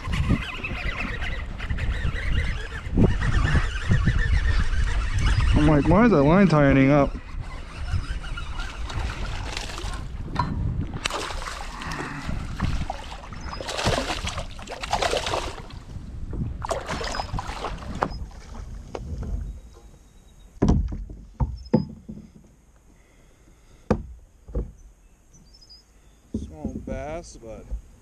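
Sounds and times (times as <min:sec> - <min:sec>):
water splashing around kayak: 0:07.4 - 0:19.9
sharp knocks: 0:20.6 - 0:22.4, 0:23.9 - 0:24.8.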